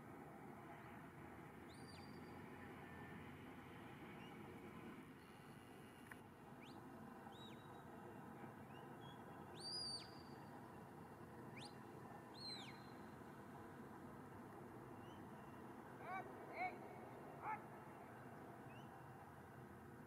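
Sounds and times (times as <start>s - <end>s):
soft field hiss: 0.0s - 20.0s.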